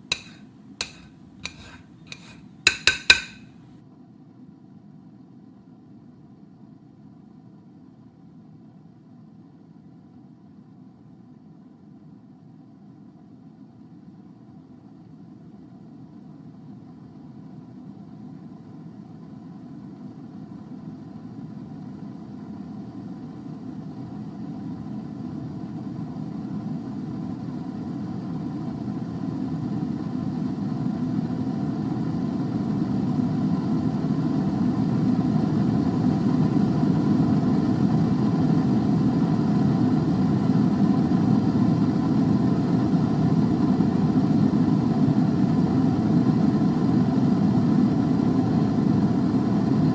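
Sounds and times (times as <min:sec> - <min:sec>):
air fryer fan whirring: 0:00.0 - 0:03.4, 0:21.4 - 0:49.9.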